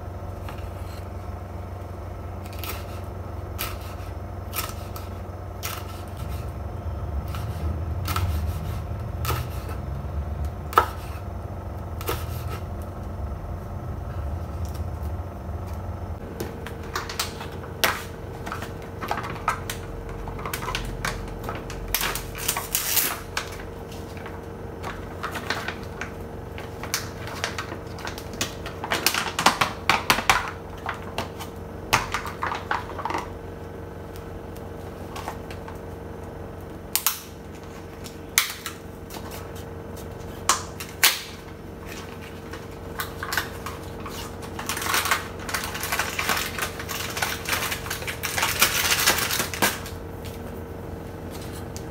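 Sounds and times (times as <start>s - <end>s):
plastic pouch crinkling: 41.9s - 49.9s.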